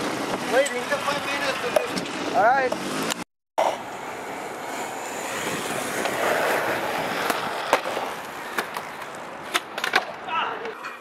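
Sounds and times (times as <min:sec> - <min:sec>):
skateboard wheels rolling on concrete: 0:00.0 - 0:11.0
skateboard clacking on ground: 0:04.7 - 0:11.0.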